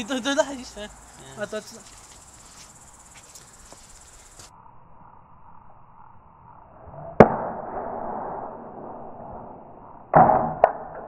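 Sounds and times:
rustling hiss: 0.0 - 4.5.

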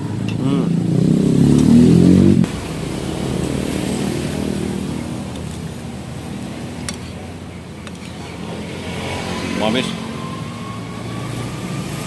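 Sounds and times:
passing vehicle engine: 0.0 - 12.0.

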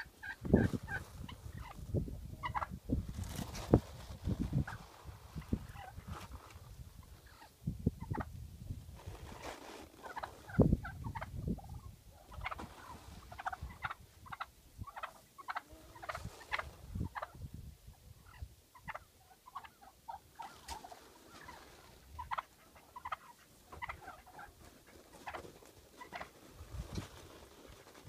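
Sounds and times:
chickens clucking and chirping: 0.0 - 2.9, 6.9 - 8.4, 10.0 - 26.8.

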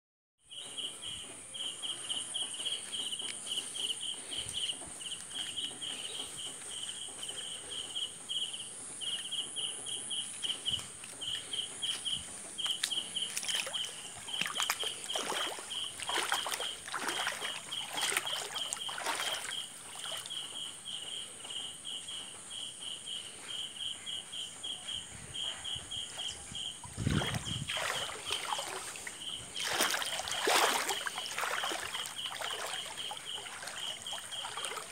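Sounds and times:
insects chirping: 0.5 - 34.9
water sloshing and splashing: 10.9 - 21.0, 26.6 - 34.9.

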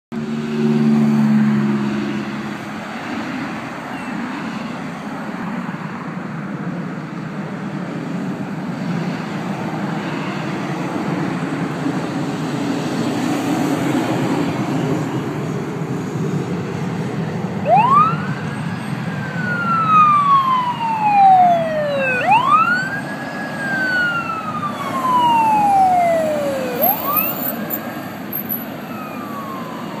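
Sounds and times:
road traffic passing: 0.1 - 30.0
heavy truck passing: 0.2 - 3.9, 7.7 - 30.0
ambulance siren wailing: 17.4 - 30.0.

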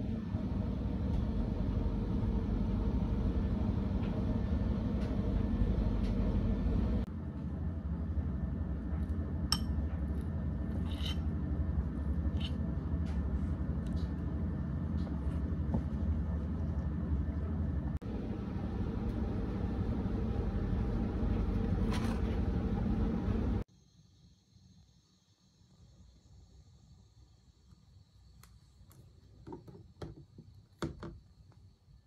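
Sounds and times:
low rumble: 0.0 - 23.7.

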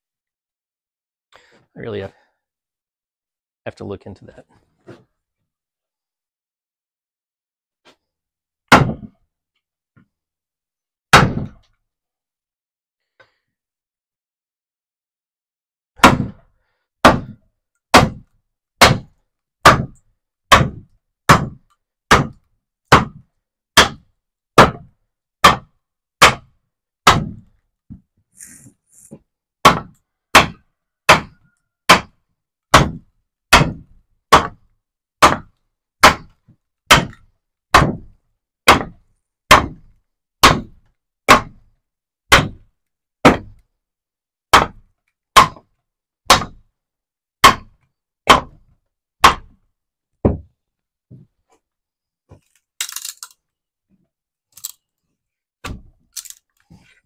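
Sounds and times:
wooden mallet striking froe: 46.3 - 46.6, 47.4 - 47.7.

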